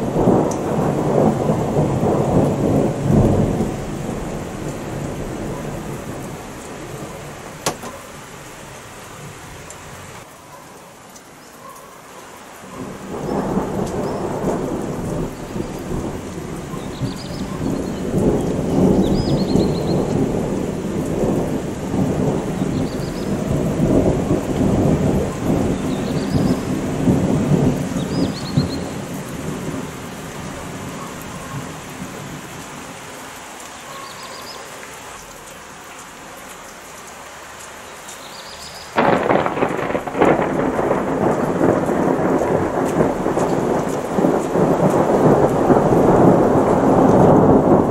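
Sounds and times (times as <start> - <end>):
loud crack of close thunder: 0.0 - 7.9, 12.8 - 29.9, 39.0 - 47.9
thunder rumbling: 0.0 - 8.6, 12.8 - 32.6, 38.9 - 47.9
steady rain: 0.0 - 47.9.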